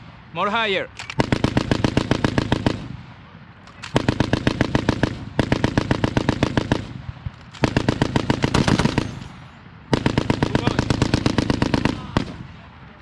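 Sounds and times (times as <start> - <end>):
machine gun firing bursts: 1.0 - 3.0, 3.8 - 7.0, 7.6 - 12.4.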